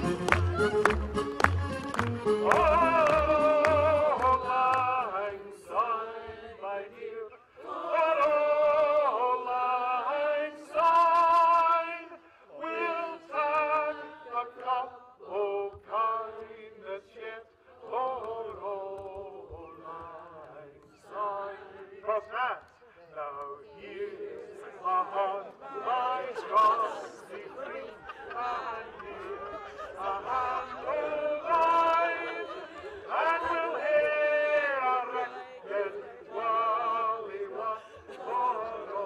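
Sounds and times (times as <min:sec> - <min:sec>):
person singing melody: 0:00.0 - 0:05.1.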